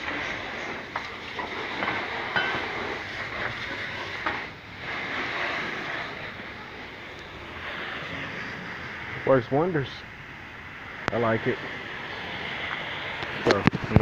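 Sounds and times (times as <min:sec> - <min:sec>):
hose spraying soapy water: 0:00.0 - 0:10.1, 0:10.7 - 0:14.0.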